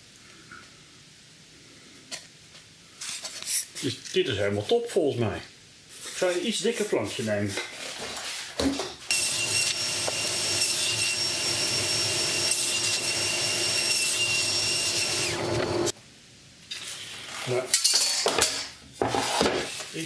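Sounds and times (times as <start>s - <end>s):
table saw cutting board: 9.1s - 15.9s.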